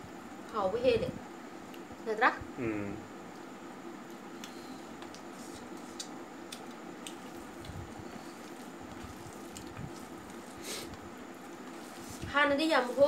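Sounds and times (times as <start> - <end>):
fingers squishing rice: 4.1 - 13.0
lime juice dripping: 6.0 - 10.4.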